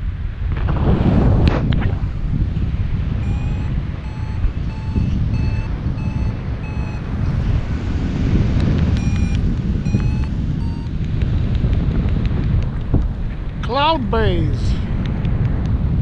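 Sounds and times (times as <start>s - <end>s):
wind rush on microphone: 0.0s - 16.0s
variometer beeping: 3.2s - 7.6s, 8.6s - 11.1s.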